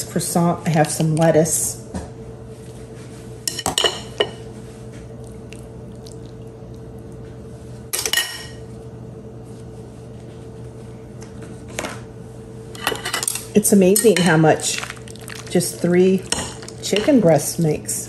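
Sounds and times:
steady low hum: 0.0 - 18.0
utensils clinking against glass bowl: 12.8 - 17.6.

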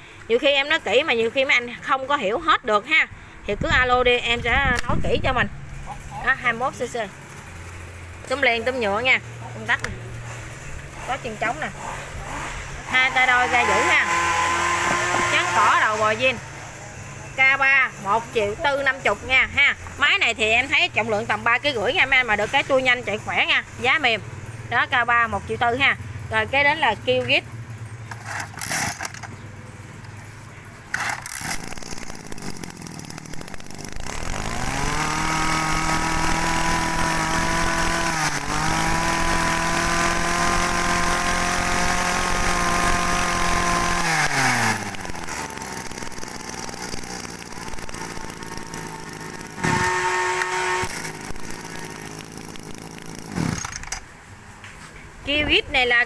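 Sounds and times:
brush cutter engine pull-started: 9.8 - 16.3, 28.1 - 29.4, 30.9 - 54.1
brush cutter engine revving: 9.8 - 16.7, 28.4 - 29.2, 30.9 - 54.0.

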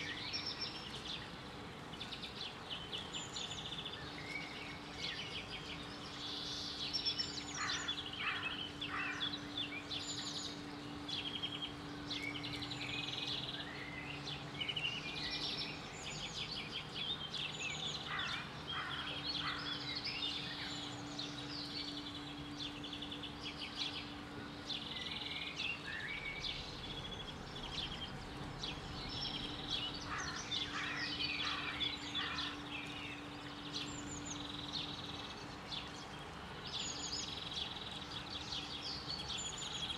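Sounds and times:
birds chirping and singing: 0.0 - 39.9
faint steady hum: 0.0 - 39.9.

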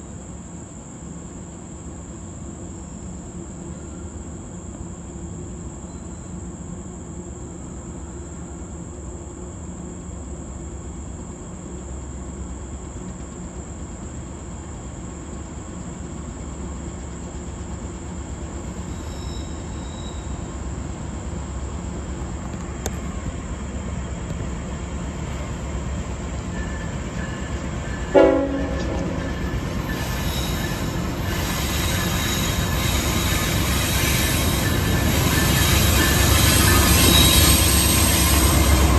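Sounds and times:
insects trilling: 0.1 - 38.9
diesel locomotives rumbling: 1.5 - 38.9
wheel squeal: 18.6 - 20.6, 29.1 - 38.9
train horn toot: 26.5 - 38.9.

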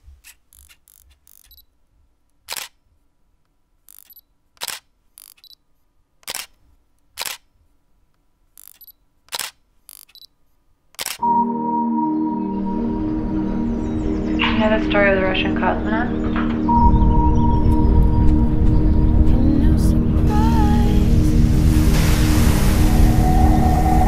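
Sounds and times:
camera shutter clicks: 2.5 - 2.8, 3.9 - 5.6, 6.2 - 6.6, 7.2 - 7.5, 8.6 - 10.3, 11.0 - 11.3
faint small clicks: 8.1 - 10.3
sustained ringing musical tone: 11.2 - 24.0.

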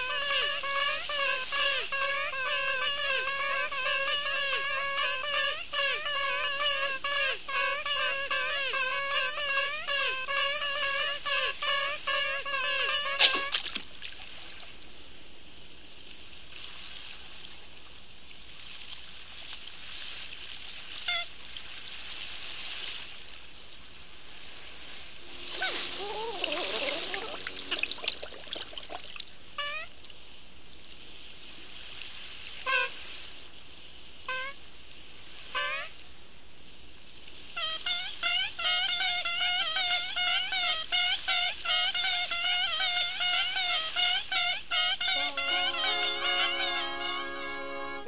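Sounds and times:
held pitched cry: 0.0 - 13.6, 25.2 - 29.0, 29.6 - 29.9, 37.6 - 47.5
water splashing and bubbling: 13.5 - 14.8, 25.2 - 29.4
running water trickling: 24.6 - 30.2
short falling chirps: 25.4 - 28.8.

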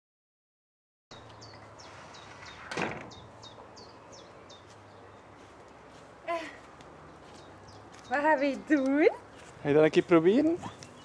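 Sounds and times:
bird chirping: 1.1 - 5.5, 7.0 - 11.0.

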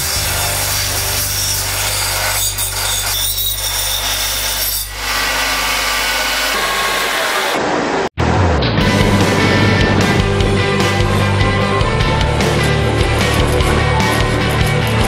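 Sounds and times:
metal grinding against belt: 12.4 - 15.0.

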